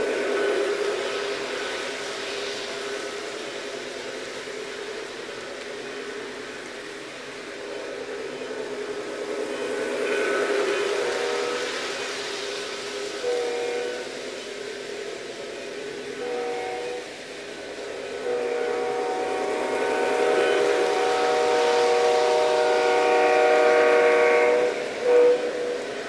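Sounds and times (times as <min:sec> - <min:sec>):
model train running noise: 0:00.0 - 0:26.0
model train air horn blasts: 0:10.7 - 0:12.0, 0:13.1 - 0:14.2, 0:16.1 - 0:17.2, 0:18.1 - 0:26.0.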